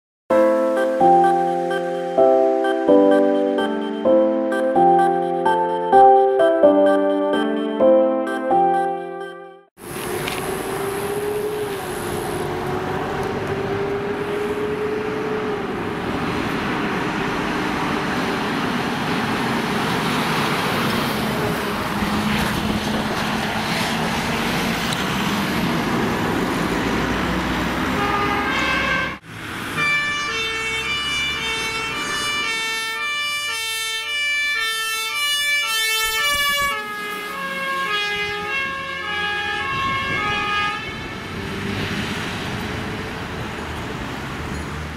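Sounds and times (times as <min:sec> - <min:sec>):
heavy truck passing by: 0:00.3 - 0:07.7, 0:09.8 - 0:34.4, 0:36.2 - 0:44.9
two-tone siren: 0:00.3 - 0:12.6, 0:28.0 - 0:41.6.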